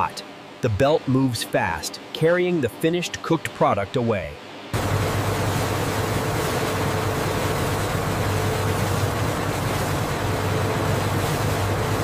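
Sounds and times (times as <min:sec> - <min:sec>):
conveyor line hiss: 0:00.0 - 0:12.0
low hum: 0:04.6 - 0:12.0.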